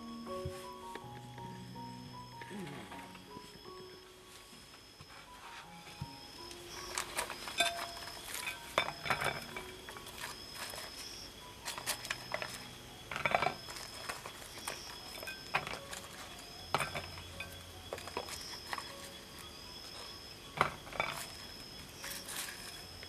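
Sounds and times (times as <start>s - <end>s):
chillies tapping on a plate: 6.8s - 22.8s.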